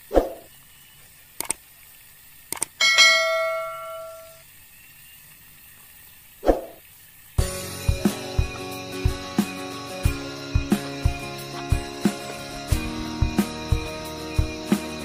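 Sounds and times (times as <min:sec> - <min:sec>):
short swish: 0:00.1 - 0:00.5, 0:06.4 - 0:06.8
bright bell ding: 0:02.8 - 0:04.4
music: 0:07.4 - 0:15.0.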